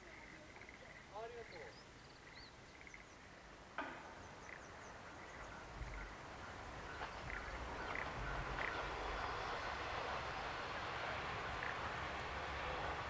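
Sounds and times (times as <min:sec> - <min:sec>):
birds chirping: 0:00.0 - 0:13.0
diesel train rumble: 0:03.9 - 0:13.0.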